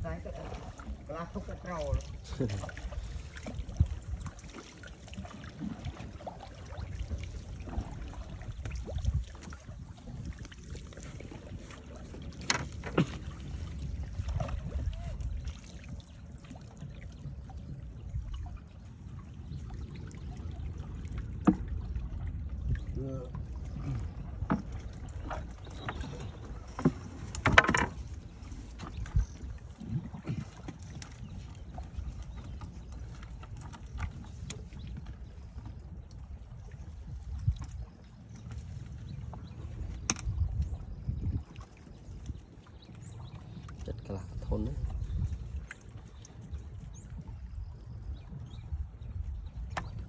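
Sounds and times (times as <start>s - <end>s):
water sloshing at boat hull: 0.0s - 50.0s
wooden knocks: 26.7s - 28.0s.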